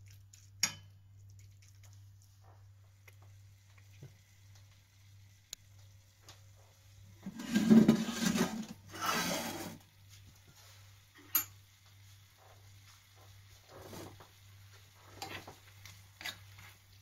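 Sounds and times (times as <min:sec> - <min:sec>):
metal pot scraping on stovetop: 0:07.2 - 0:09.8.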